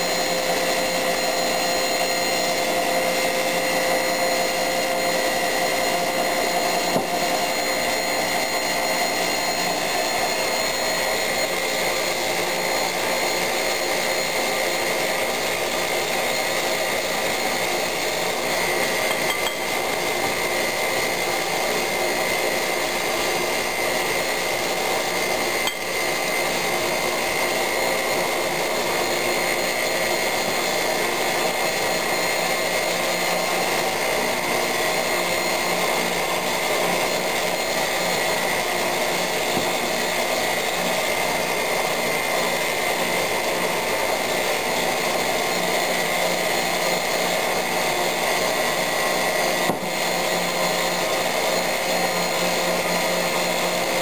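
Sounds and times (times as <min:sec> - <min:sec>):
stand mixer whining: 0:00.0 - 0:54.0
spatula scraping glass bowl: 0:19.0 - 0:19.7.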